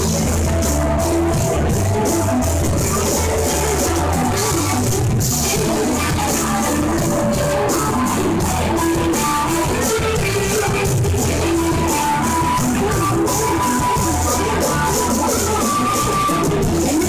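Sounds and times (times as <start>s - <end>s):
drum kit: 0.0s - 17.0s
electric guitar: 0.0s - 17.0s.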